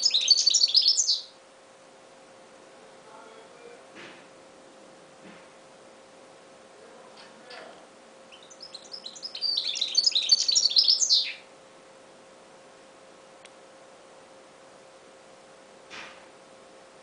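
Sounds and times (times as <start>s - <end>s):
bird twittering song: 0.0s - 1.4s, 8.3s - 11.5s
faint steady hum: 0.0s - 17.0s.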